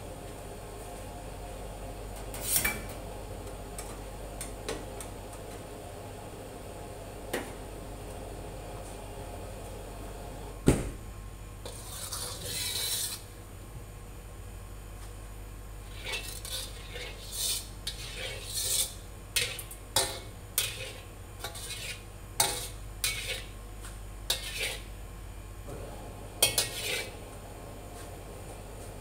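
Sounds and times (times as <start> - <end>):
steady low hum: 0.0 - 29.0
ladle and brush scraping a wok: 11.6 - 13.3, 15.8 - 23.6, 24.3 - 24.9, 26.4 - 27.2.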